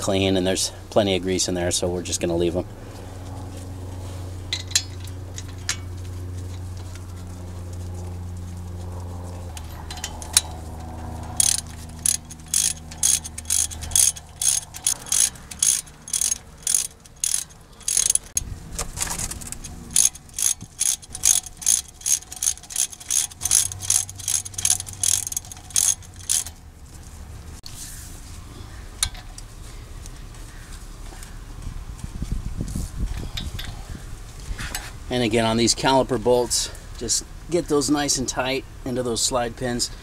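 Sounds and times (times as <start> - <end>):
ratchet wrench clicking: 9.5 - 10.6, 11.3 - 18.4, 19.2 - 26.6.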